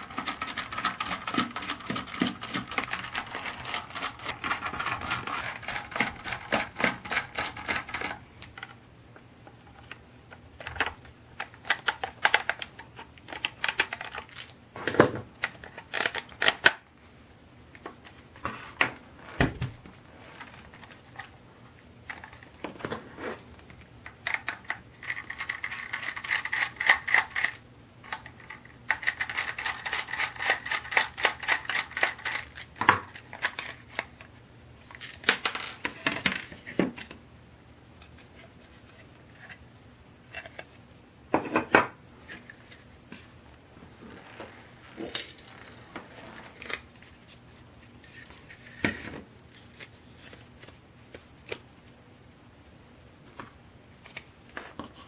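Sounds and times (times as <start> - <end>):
plastic parts knocking: 0.0 - 8.7.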